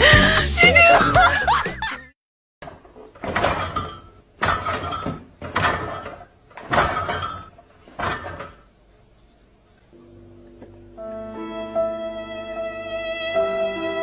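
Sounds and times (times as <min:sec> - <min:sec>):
fridge door banging: 0:02.6 - 0:08.6.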